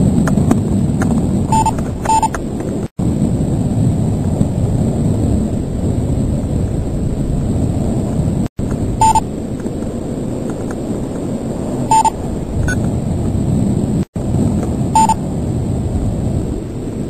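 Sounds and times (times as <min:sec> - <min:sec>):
wind buffeting microphone: 0:00.0 - 0:17.0
short electronic beep: 0:01.5 - 0:02.3, 0:09.0 - 0:09.2, 0:11.9 - 0:12.8, 0:15.0 - 0:15.2
faint high whine: 0:03.0 - 0:13.0, 0:13.6 - 0:17.0.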